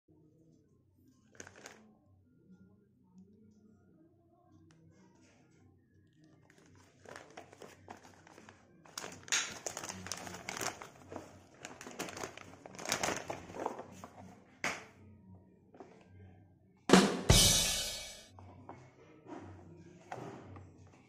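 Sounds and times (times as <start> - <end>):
plastic bag crinkling: 1.3 - 1.8, 6.4 - 14.0.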